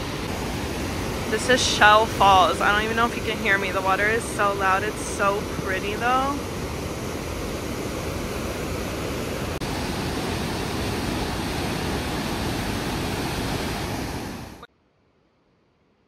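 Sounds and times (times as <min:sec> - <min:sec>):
waterfall roaring: 0:00.0 - 0:14.7.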